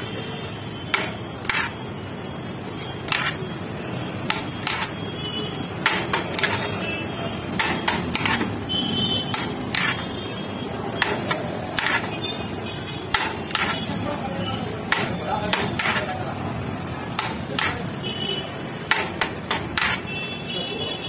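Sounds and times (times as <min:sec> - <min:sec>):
steady background noise: 0:00.0 - 0:21.0
metal ladle knocking on metal pot: 0:07.5 - 0:08.6, 0:18.9 - 0:20.1.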